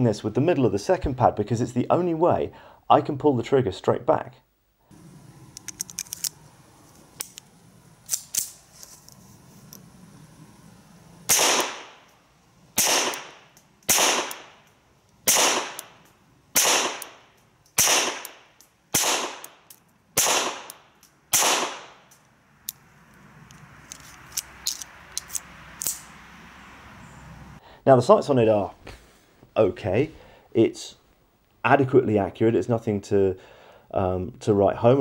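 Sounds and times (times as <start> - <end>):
pistol shots with echo: 11.3 - 12.0, 12.8 - 14.6, 15.2 - 16.0, 16.6 - 19.6, 20.2 - 22.0.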